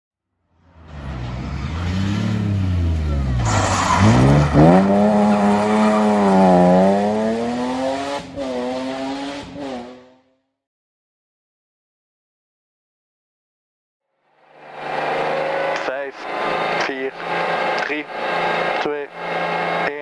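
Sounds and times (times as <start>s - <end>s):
rally car engine revving: 0.6s - 10.3s, 14.5s - 20.0s.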